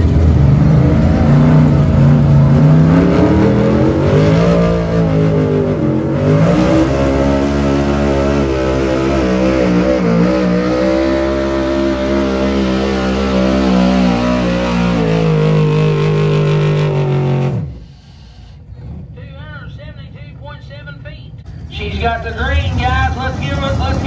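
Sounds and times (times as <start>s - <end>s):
pickup truck engine at high revs: 0.0s - 18.0s.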